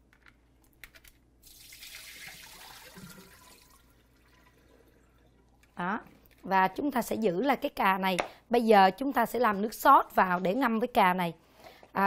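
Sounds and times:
water pouring into a sink: 0:01.4 - 0:05.4.

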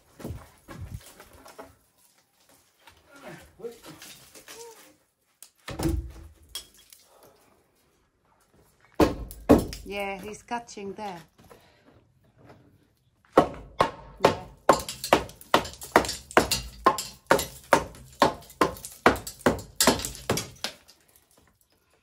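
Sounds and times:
hammer striking wooden beam: 0:09.0 - 0:09.9, 0:13.4 - 0:20.8.

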